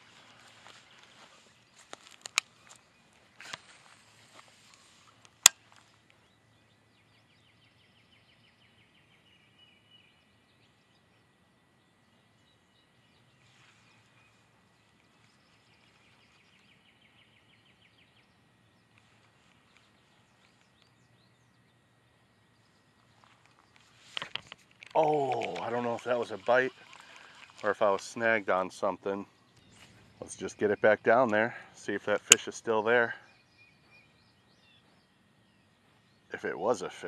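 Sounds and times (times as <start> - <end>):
birds trilling faintly: 0.0 - 37.0
sharp clicks: 32.2 - 32.5.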